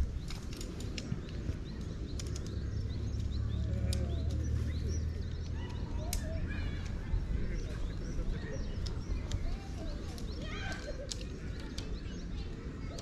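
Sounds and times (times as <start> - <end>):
sharp clicks: 0.0 - 7.0, 8.6 - 13.0
small birds chirping: 0.0 - 13.0.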